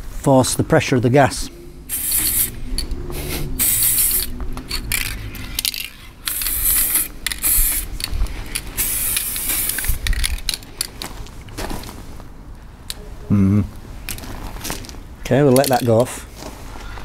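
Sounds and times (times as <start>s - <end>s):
spray paint can hissing: 1.9s - 10.9s.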